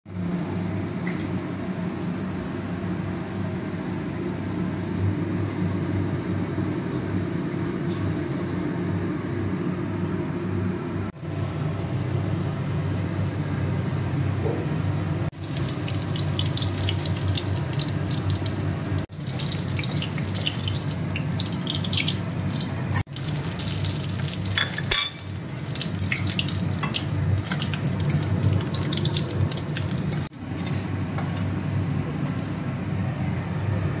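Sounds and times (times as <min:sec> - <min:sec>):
oil sizzling in a wok: 0:15.3 - 0:32.4
spices crackling in oil: 0:15.4 - 0:32.6.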